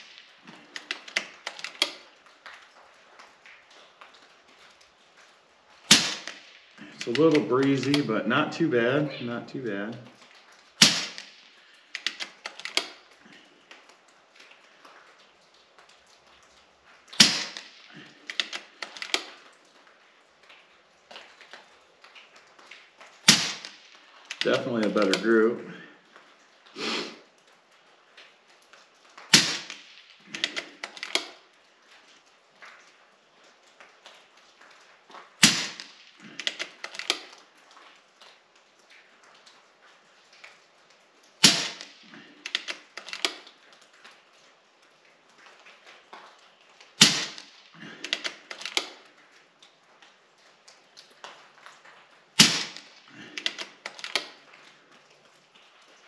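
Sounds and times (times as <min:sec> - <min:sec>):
air rifle shot with echo: 0:05.9 - 0:06.5, 0:10.8 - 0:11.4, 0:17.2 - 0:17.8, 0:23.3 - 0:23.9, 0:29.3 - 0:30.7, 0:35.4 - 0:35.9, 0:41.4 - 0:42.0, 0:47.0 - 0:47.6, 0:52.4 - 0:53.0
air rifle lever clicks: 0:12.0 - 0:13.0, 0:18.3 - 0:19.3, 0:30.4 - 0:31.4, 0:36.4 - 0:37.3, 0:42.5 - 0:43.4, 0:48.0 - 0:49.0, 0:52.4 - 0:54.3
rifle lever clicks: 0:30.4 - 0:31.3, 0:53.4 - 0:54.3.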